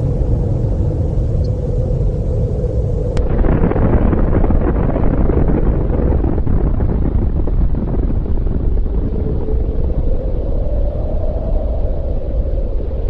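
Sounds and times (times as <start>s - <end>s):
large explosion rumble: 3.1s - 10.6s.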